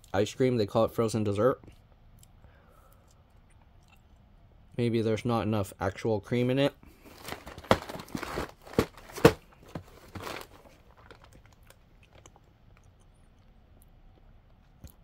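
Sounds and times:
faint cardboard rustling: 6.9 - 11.7
cardboard box taps and crinkles: 7.2 - 11.2.

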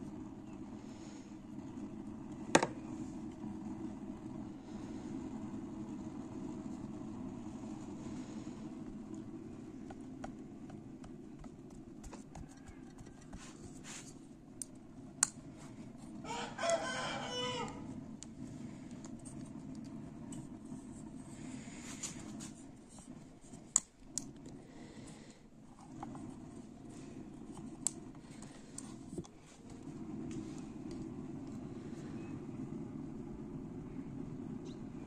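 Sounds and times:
steady low hum: 0.0 - 35.0
rooster crowing: 12.3 - 13.6, 16.2 - 18.0.

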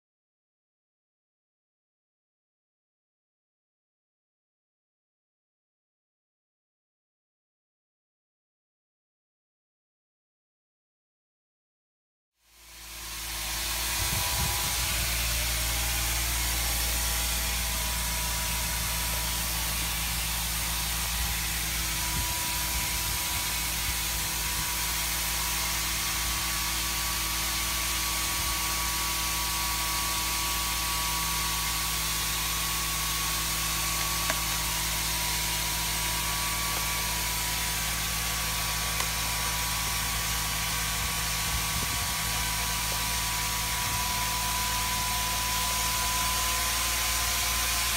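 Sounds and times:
hydraulic power unit humming: 12.6 - 47.9
thin steady whine: 12.6 - 47.9.

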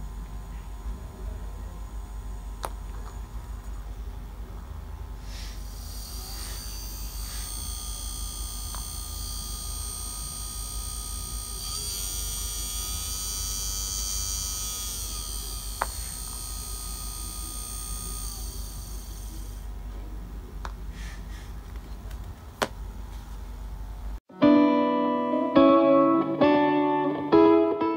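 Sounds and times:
electric motor whining: 5.2 - 19.8.

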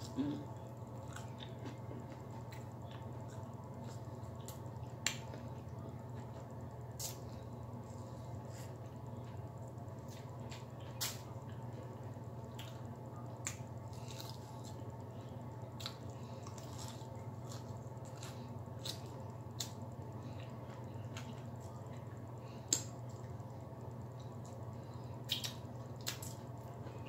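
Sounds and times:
steady low hum: 0.0 - 27.0
mouth clicks and chewing: 25.3 - 26.4.

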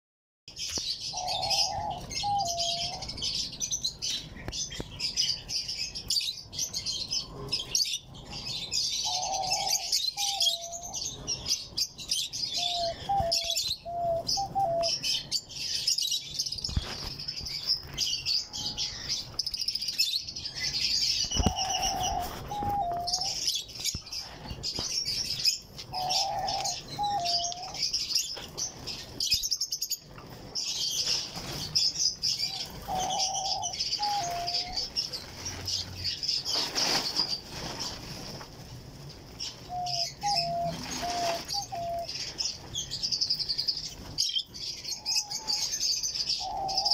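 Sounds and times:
small cage birds chirping: 0.5 - 46.9
dove cooing: 1.1 - 3.1, 9.0 - 11.1, 12.5 - 15.2, 21.3 - 23.6, 25.4 - 27.9, 32.4 - 35.6, 39.6 - 42.2, 45.0 - 46.9.

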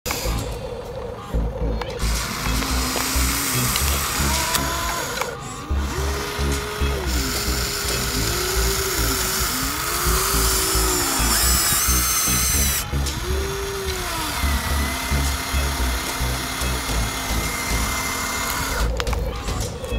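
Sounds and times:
background music with steady beat: 0.1 - 19.9
small electric motors whining: 0.1 - 19.9.

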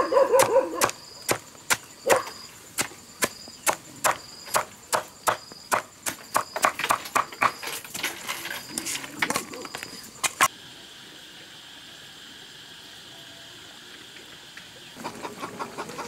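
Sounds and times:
knife chopping vegetable stalks: 0.4 - 7.6.

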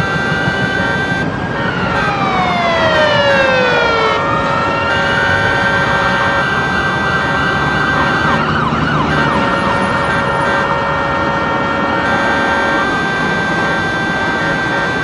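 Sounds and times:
emergency siren yelping: 0.0 - 15.0
steady horn tones: 0.0 - 15.0
street traffic rumbling: 0.0 - 15.0.

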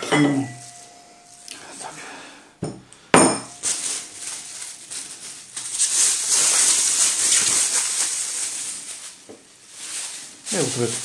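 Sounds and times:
pot set down with clink: 0.0 - 0.6
plastic bag crinkling: 0.4 - 1.6, 3.5 - 11.0.

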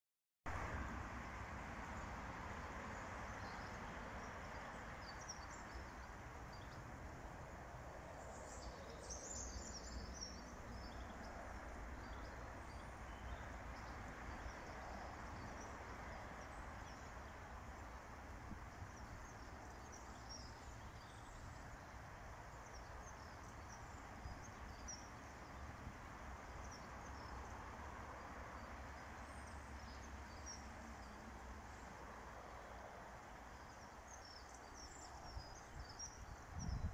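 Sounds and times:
small birds chirping: 8.2 - 25.7.

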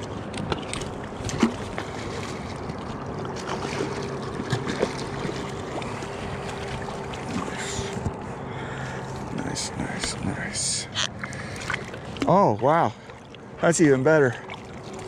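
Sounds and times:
water sloshing: 0.0 - 15.0.

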